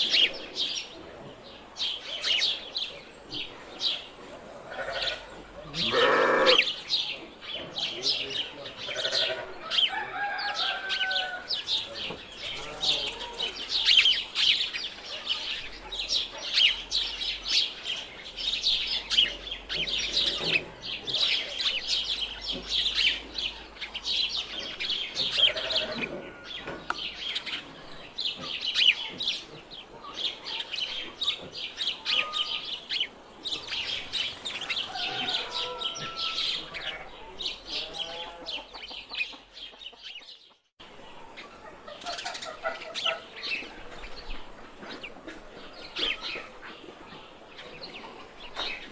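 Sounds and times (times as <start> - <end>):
small birds chirping: 0.0 - 48.9
hens clucking: 33.9 - 40.6, 41.2 - 48.9.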